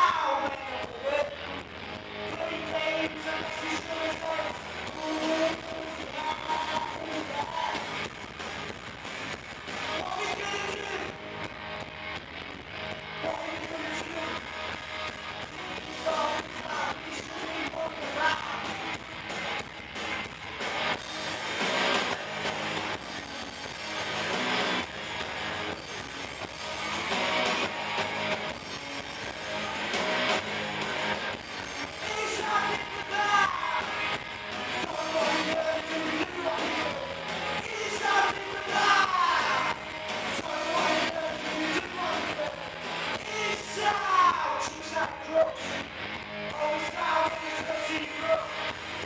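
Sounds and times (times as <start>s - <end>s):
bass guitar: 0.0s - 49.0s
drum kit: 0.0s - 49.0s
electric guitars: 0.0s - 49.0s.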